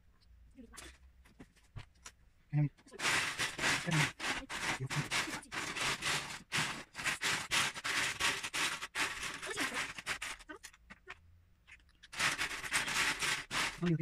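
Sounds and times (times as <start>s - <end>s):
plastic bricks clattering: 2.9s - 11.1s, 12.0s - 14.0s.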